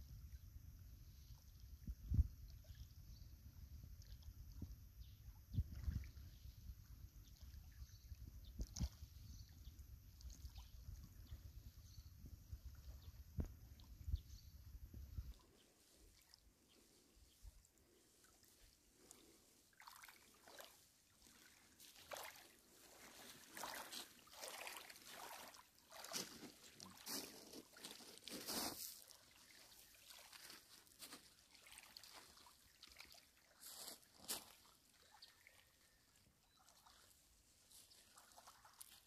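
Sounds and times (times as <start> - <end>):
small waves lapping on pebbles: 18.1 - 39.0.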